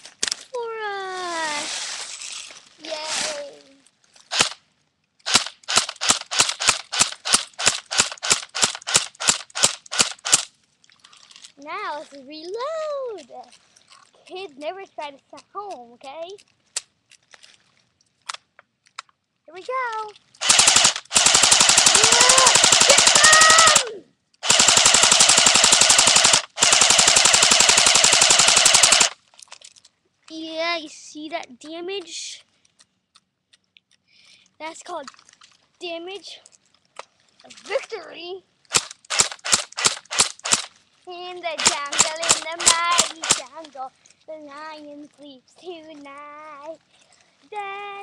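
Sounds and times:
airsoft gun shots: 20.4 - 23.8, 24.4 - 29.2, 38.7 - 40.7, 41.6 - 43.4.

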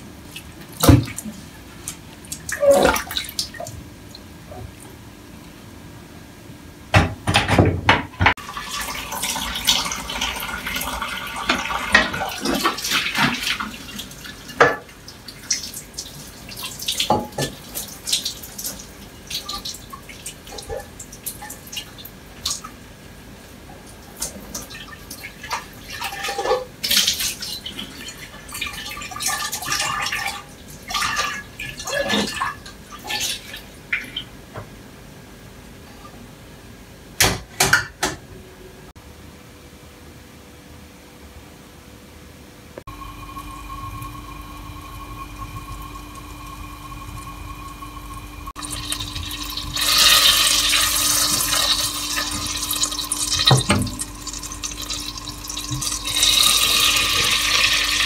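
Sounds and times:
tap water running and splashing: 0.3 - 4.9, 8.2 - 22.8, 23.9 - 34.1, 43.2 - 58.0.

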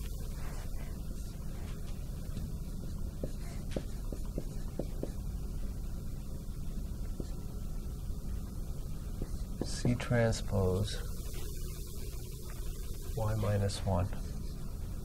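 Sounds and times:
marker writing on whiteboard: 0.0 - 5.8, 6.8 - 7.5, 9.0 - 10.4
low room hum: 0.0 - 15.0.

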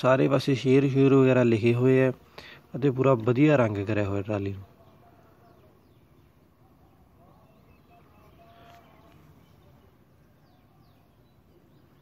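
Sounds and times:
distant bird chirps: 0.0 - 12.0.

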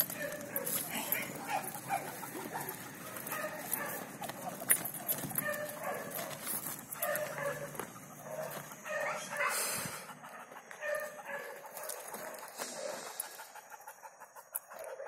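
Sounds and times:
dog barking: 0.0 - 4.0, 5.4 - 13.1
scuffing noise: 0.0 - 13.2.

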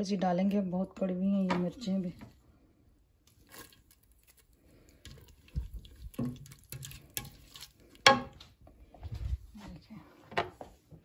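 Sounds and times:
spatula scraping metal pot: 5.0 - 8.3.

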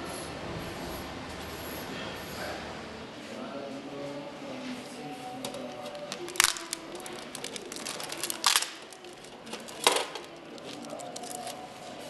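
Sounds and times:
plastic bag crinkling: 5.6 - 11.8.

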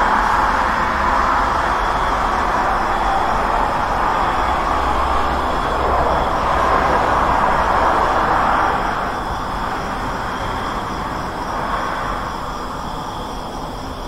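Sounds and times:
road traffic rushing: 0.0 - 14.0.

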